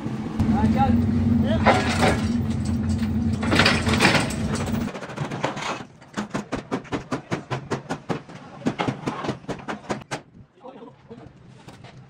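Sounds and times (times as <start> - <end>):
engine running: 0.0 - 4.9.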